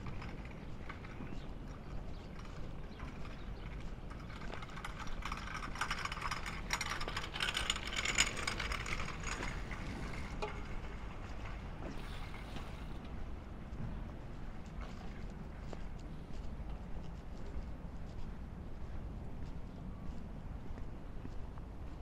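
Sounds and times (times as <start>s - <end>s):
rapid mechanical clicking: 0.0s - 11.6s
steady low rumble: 0.0s - 22.0s.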